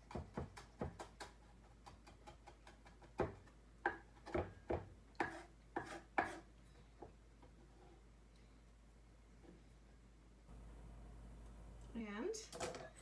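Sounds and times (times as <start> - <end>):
knife chopping on wooden board: 0.0 - 6.4.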